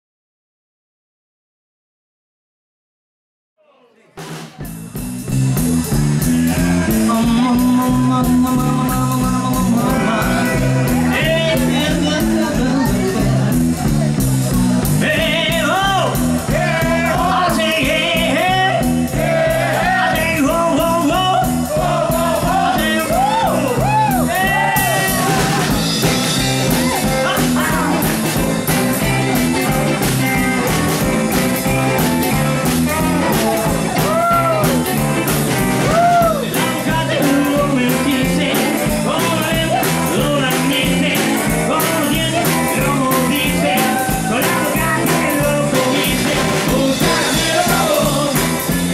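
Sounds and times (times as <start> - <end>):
rockabilly band playing: 4.0 - 48.9
person singing lead vocal: 6.2 - 13.9, 14.9 - 28.3, 35.8 - 48.9.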